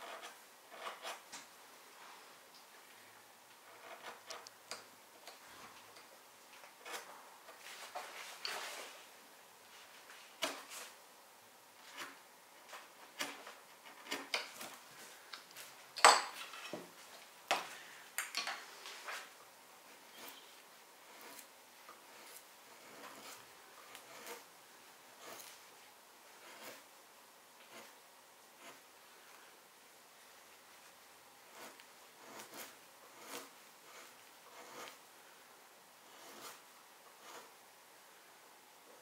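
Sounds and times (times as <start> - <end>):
knife cutting wood: 11.9 - 14.8, 21.1 - 24.5, 25.2 - 25.6, 26.4 - 26.8, 31.5 - 35.0.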